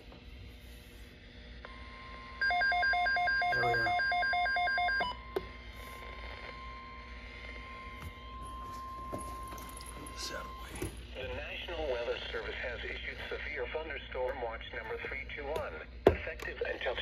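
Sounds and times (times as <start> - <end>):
rapid electronic alarm beeping: 2.4 - 5.4, 6.5 - 10.9.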